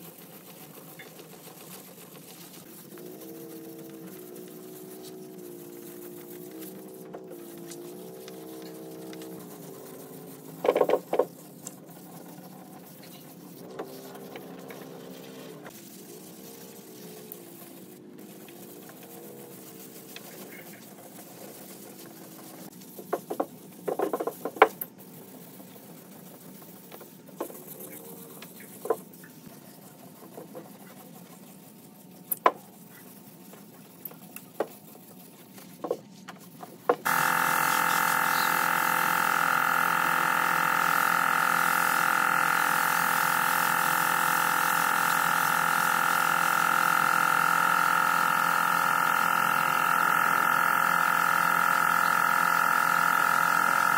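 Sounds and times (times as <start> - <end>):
sanding block scrapes and knocks: 0.0 - 39.3
wet sanding with hose running: 0.0 - 53.9.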